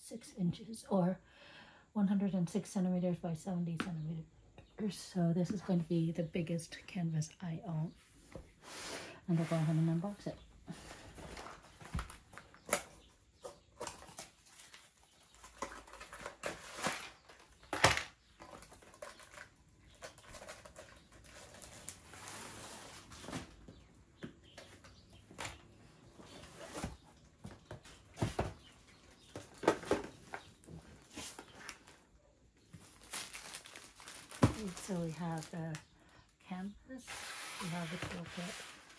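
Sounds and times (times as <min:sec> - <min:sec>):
packaging scraping and rustling: 0:13.8 - 0:23.6.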